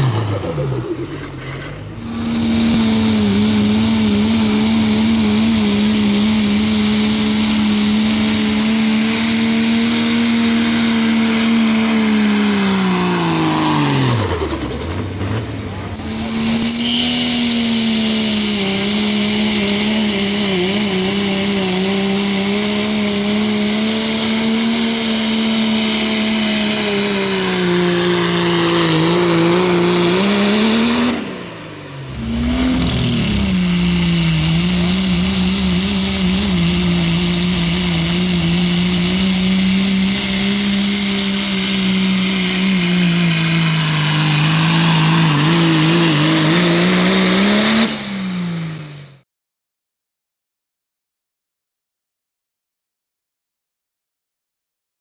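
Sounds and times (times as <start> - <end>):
heavy diesel engine at full throttle: 0.0 - 49.2
high turbo whistle: 15.9 - 18.6, 29.1 - 42.1.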